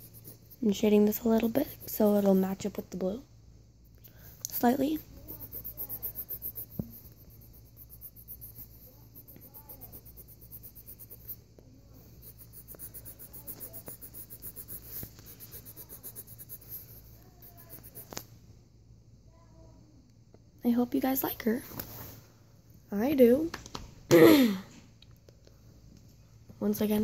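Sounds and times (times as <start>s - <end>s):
pencil scratching on paper: 0.0s - 2.6s, 4.5s - 18.2s.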